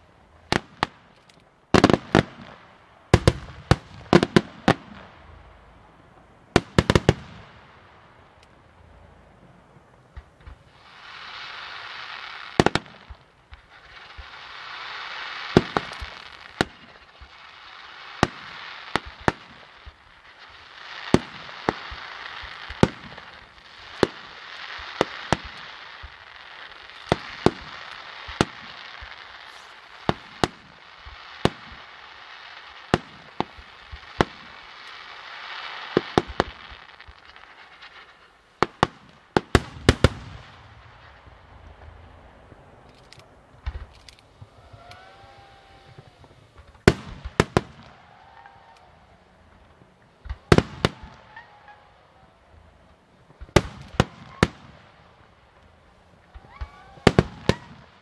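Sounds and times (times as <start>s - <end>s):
rushing hiss: 13.7s - 38.7s
firework shells bursting: 35.8s - 58.0s.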